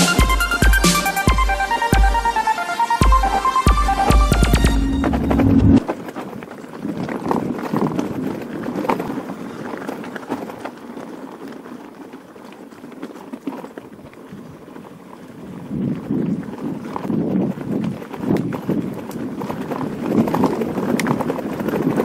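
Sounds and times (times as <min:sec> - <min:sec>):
electronic music: 0:00.0 - 0:05.8
bike rattling: 0:00.0 - 0:22.0
bike tyres crunching on gravel: 0:05.8 - 0:22.0.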